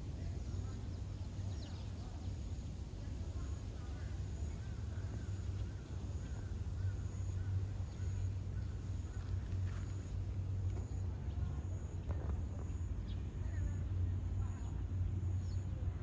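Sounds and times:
low outdoor background rumble: 0.0 - 16.0
distant birds calling: 0.3 - 15.8.

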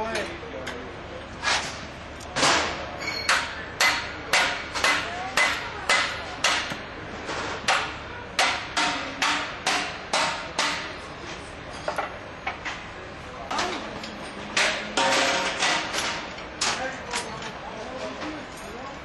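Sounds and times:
hammer striking: 2.4 - 6.8, 7.7 - 11.0, 14.6 - 16.1.

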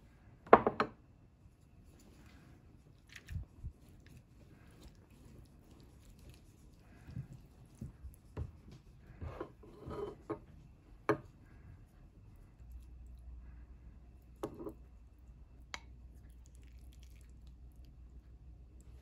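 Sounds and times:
wooden spoon tapping and scraping bowl: 14.4 - 14.8.

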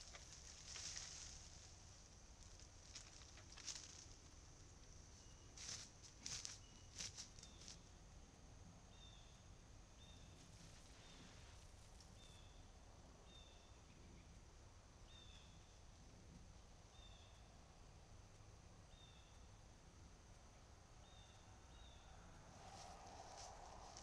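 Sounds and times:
faint footsteps in grass: 0.0 - 4.4, 5.2 - 7.8, 22.6 - 24.0
faint high chirp: 5.1 - 5.6, 6.3 - 7.8.

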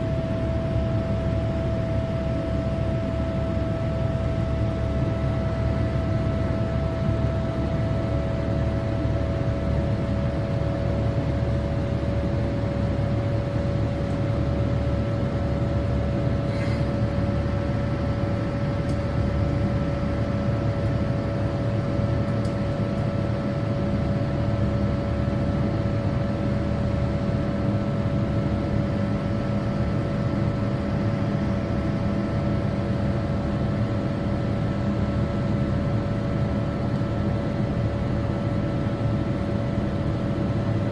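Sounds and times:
jet engines heard from cabin: 0.0 - 40.9.

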